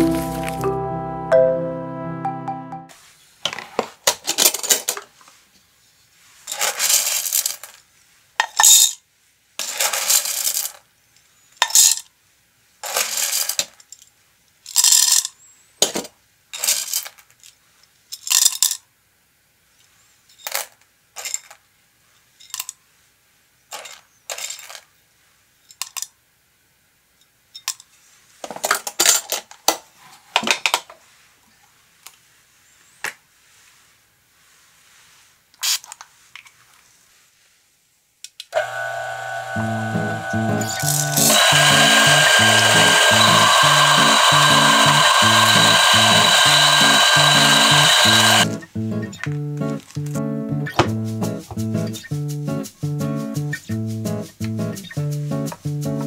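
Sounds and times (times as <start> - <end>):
coffee beans rattling into plastic cup: 6.5 - 7.8, 9.6 - 10.8.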